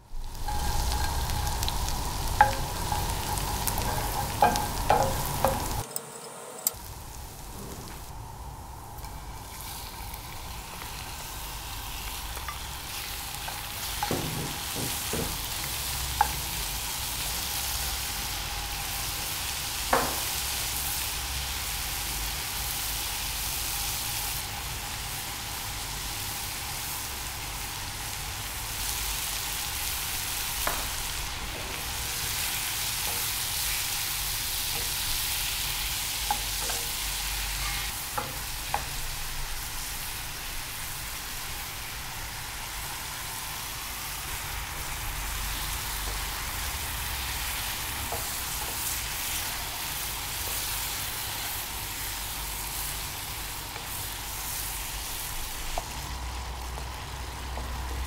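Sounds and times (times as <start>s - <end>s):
seafood sizzling in a frying pan: 0.0s - 5.9s, 6.7s - 58.0s
wooden spatula knocking on pan: 2.4s - 5.8s, 14.0s - 15.6s, 19.9s - 20.3s.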